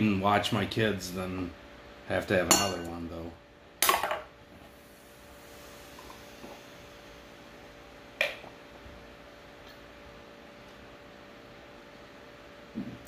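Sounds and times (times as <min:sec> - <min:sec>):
glass clink: 0:02.5 - 0:02.9.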